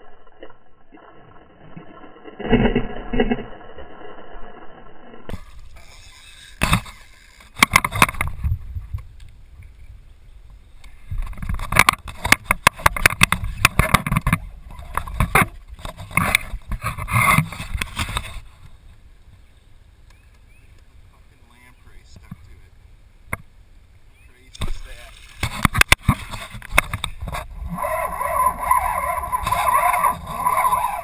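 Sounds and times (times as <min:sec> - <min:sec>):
water splashing: 0:24.4 - 0:31.0.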